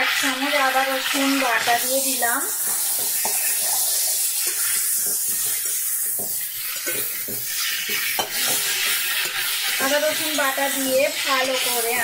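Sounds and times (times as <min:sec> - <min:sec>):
metal spatula scraping: 0:00.0 - 0:12.0
vegetables sizzling in hot oil: 0:00.0 - 0:12.0.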